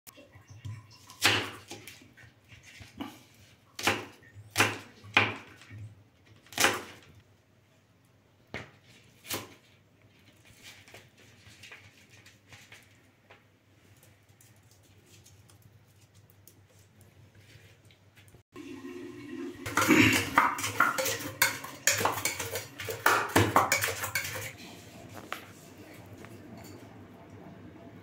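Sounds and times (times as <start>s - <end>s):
knife slicing onion: 2.6s - 5.6s, 6.4s - 7.1s, 8.9s - 9.7s, 19.7s - 24.5s.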